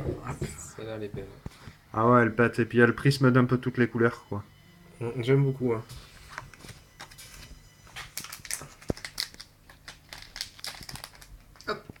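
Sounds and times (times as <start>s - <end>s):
foil wrappers crackling: 6.4s - 12.0s.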